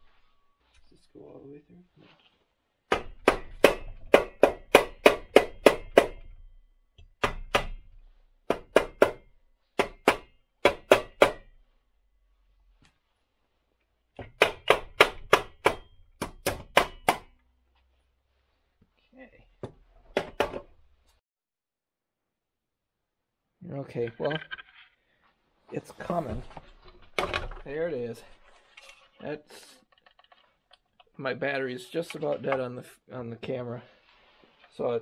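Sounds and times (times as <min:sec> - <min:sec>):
rubber mallet striking metal: 0:02.9 - 0:06.3, 0:07.0 - 0:07.8, 0:08.5 - 0:11.6, 0:14.2 - 0:17.4.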